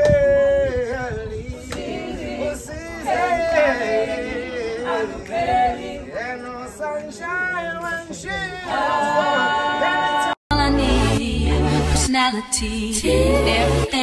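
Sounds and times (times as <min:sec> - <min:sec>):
group of people singing: 0:00.0 - 0:14.0.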